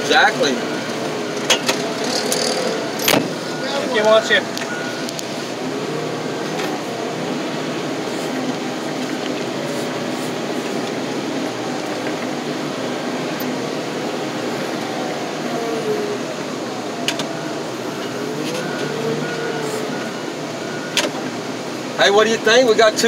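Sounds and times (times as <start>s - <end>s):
loader engine running: 0.0s - 23.0s.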